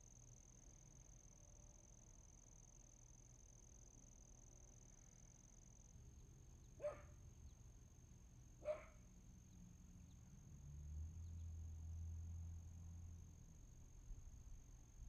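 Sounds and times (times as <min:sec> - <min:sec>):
dog barking: 0:06.8 - 0:07.2, 0:08.6 - 0:09.0.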